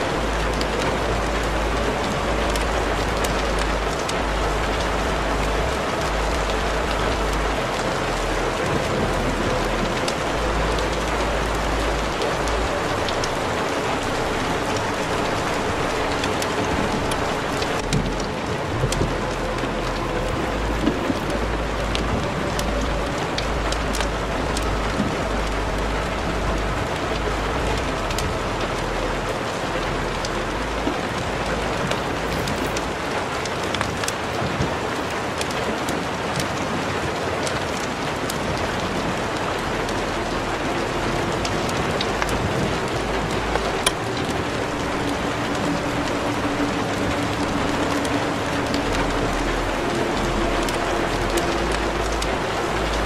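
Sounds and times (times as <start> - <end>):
rain-like hiss: 0.0 - 53.0
crackling clicks: 30.1 - 36.8, 37.4 - 53.0.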